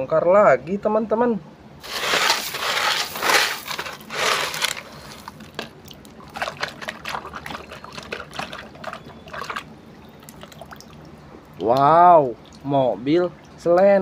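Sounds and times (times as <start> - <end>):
pebbles clicking: 1.8 - 8.7
wet gravel crunching and scraping: 1.8 - 9.6
water dripping: 5.5 - 14.0.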